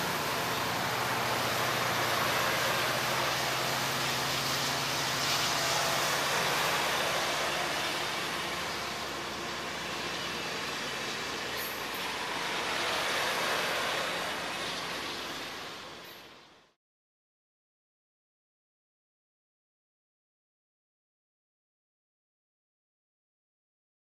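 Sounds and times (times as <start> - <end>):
steel wheels on rails: 0.0 - 16.6
train cars rolling past: 0.0 - 16.7.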